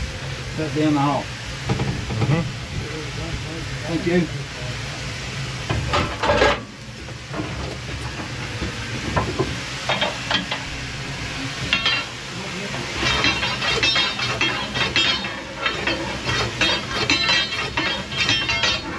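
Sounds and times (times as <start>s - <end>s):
fire rumbling and hissing: 0.0s - 18.9s
fire iron knocking and scraping: 5.6s - 10.7s, 11.6s - 18.9s.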